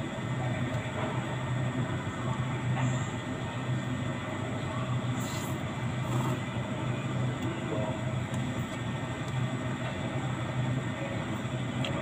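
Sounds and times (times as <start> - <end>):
low mechanical hum: 0.0 - 12.0
slurping noodles: 5.2 - 6.4.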